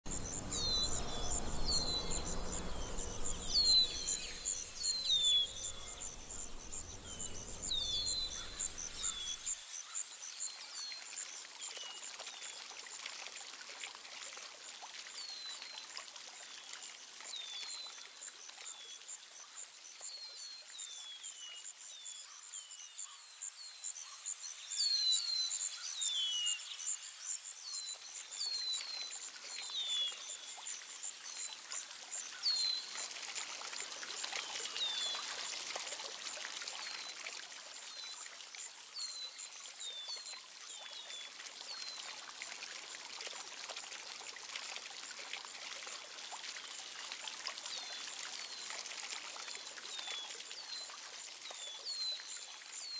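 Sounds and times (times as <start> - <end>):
low rushing noise: 0.0 - 9.4
insect trill: 0.1 - 9.5.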